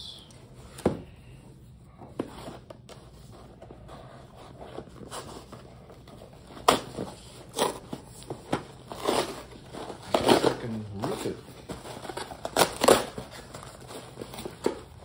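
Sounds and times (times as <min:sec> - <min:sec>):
knife scraping packing tape: 0:08.9 - 0:10.6.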